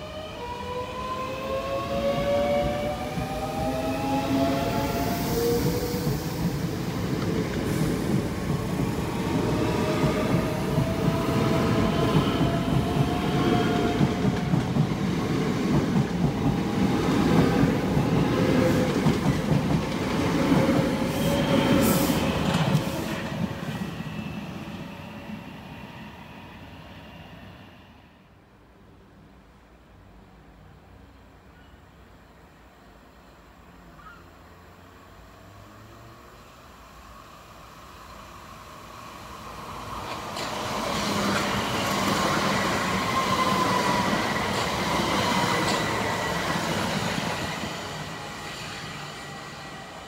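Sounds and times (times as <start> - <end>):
train wheels clattering on rail: 5.5 - 23.6, 40.0 - 47.7.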